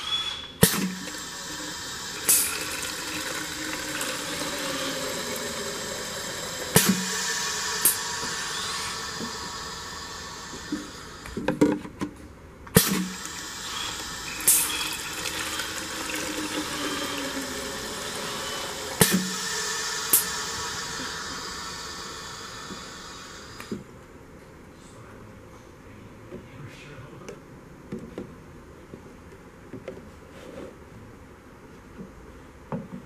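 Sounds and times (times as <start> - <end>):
short machine hisses: 0.0 - 11.5, 12.8 - 23.8.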